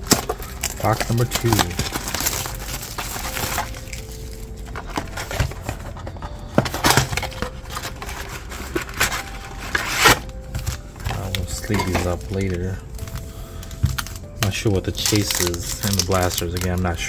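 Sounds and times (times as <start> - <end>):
foil packs crinkling: 0.0 - 17.0
cardboard box scraping and tapping: 4.7 - 12.6.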